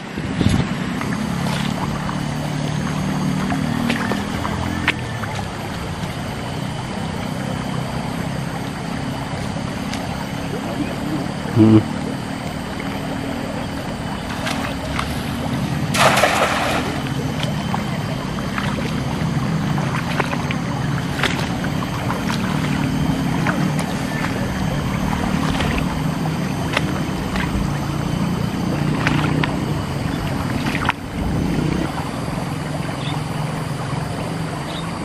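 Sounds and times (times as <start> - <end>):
steady low drone: 0.0 - 35.0
net splashing into water: 15.8 - 17.9.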